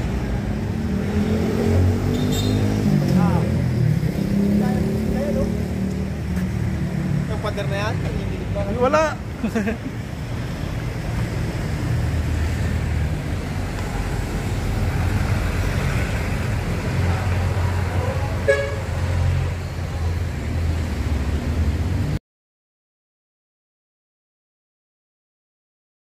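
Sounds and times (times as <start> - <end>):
traffic engines rumbling: 0.0 - 22.2
short car horn toot: 2.1 - 2.7.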